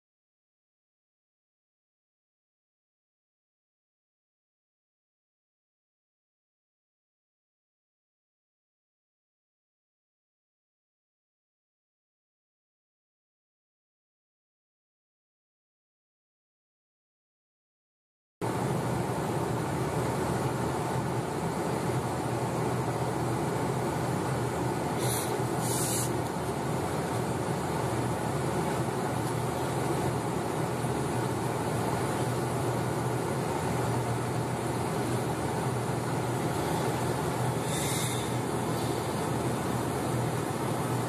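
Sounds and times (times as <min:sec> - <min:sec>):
car engine and road noise: 0:18.4 - 0:41.0
short hiss bursts: 0:25.0 - 0:26.2, 0:37.6 - 0:39.0.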